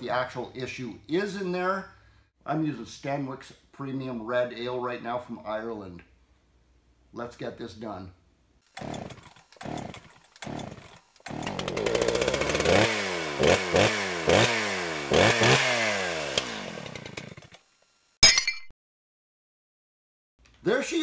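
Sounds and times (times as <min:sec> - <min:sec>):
chainsaw engine revving: 0:08.6 - 0:17.8.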